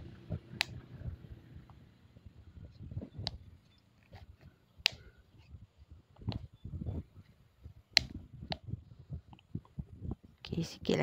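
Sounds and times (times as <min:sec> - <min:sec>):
sharp clicks: 0:04.8 - 0:05.1, 0:07.9 - 0:08.7.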